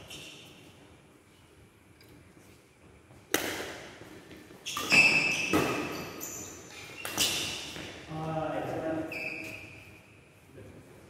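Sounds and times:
racket striking shuttlecock: 3.3s - 4.0s, 4.7s - 6.1s.

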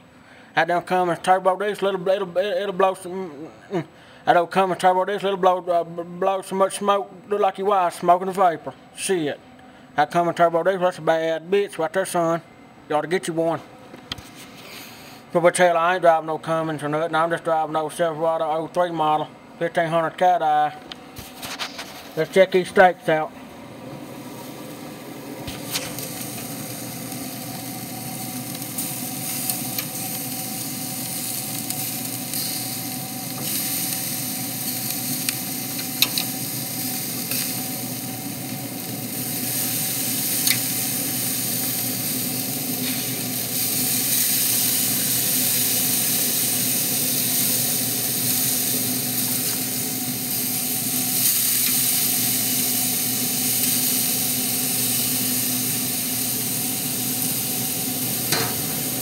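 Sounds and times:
faint steady hum: 0.0s - 59.0s
steaks sizzling on a grill: 23.8s - 59.0s.

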